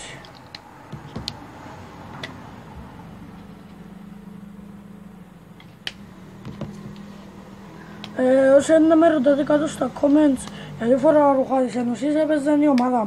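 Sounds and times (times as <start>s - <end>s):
low steady hum: 0.0s - 13.0s
clicks and taps on a table: 0.9s - 1.4s.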